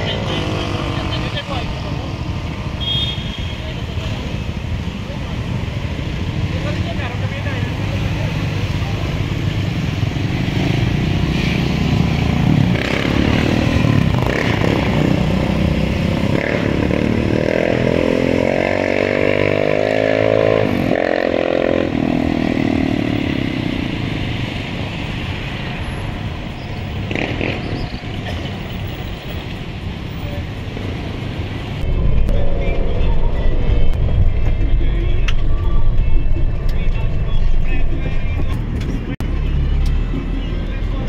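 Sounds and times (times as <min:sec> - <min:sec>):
vehicle passing: 0:31.5 - 0:39.7
low engine drone: 0:31.7 - 0:39.8.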